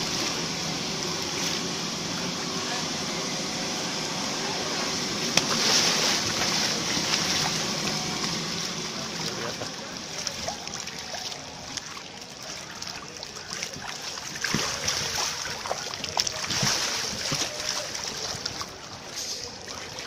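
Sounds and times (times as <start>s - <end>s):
water sloshing and splashing: 0.0s - 3.0s, 4.7s - 20.0s.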